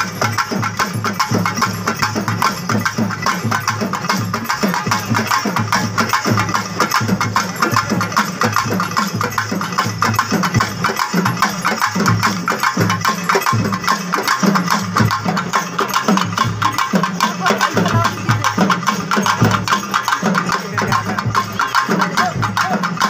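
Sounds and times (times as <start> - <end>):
fast drumming: 0.0 - 23.0.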